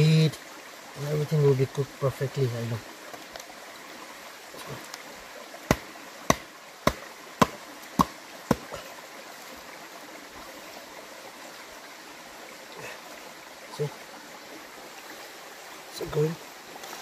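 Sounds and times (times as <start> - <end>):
stream rushing: 0.0 - 17.0
bamboo tube knocking on ground: 5.7 - 8.7.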